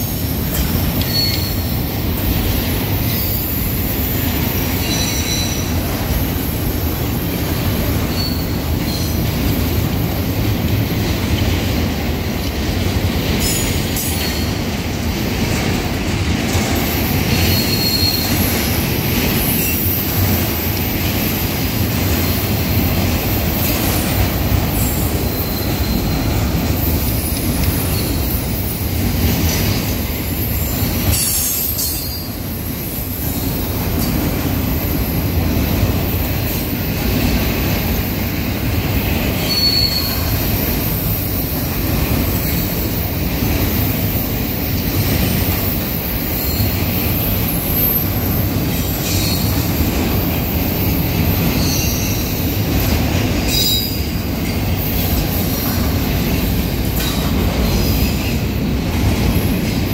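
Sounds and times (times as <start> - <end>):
train wheels rumbling on rail: 0.0 - 59.9
wheel squeals: 0.5 - 2.0, 3.0 - 5.7, 8.0 - 9.3, 16.8 - 20.4, 24.7 - 28.8, 39.3 - 41.4, 46.2 - 49.8, 50.8 - 54.2.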